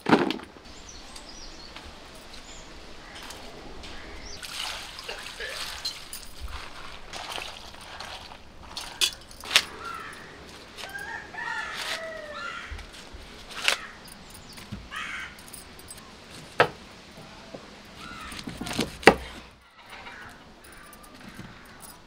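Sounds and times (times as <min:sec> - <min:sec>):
rooster crowing: 0:09.8 - 0:12.9.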